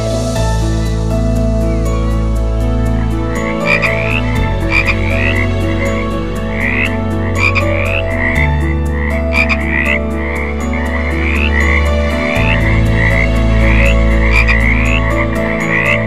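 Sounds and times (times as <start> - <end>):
frog croaking: 3.4 - 16.0.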